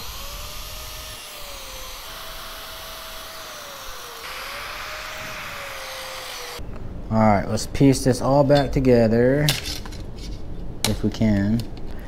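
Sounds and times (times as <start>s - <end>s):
power drill boring through metal: 0.0s - 6.6s.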